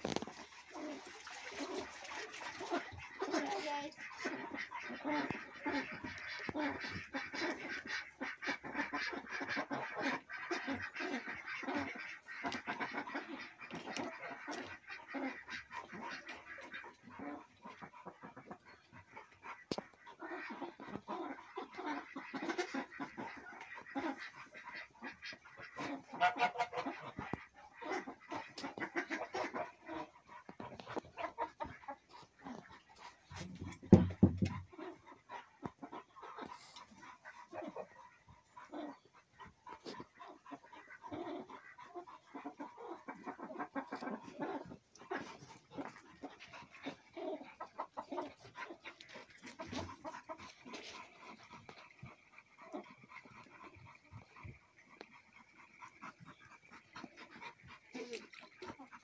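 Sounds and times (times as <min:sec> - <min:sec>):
chickens clucking: 0:00.0 - 0:59.0.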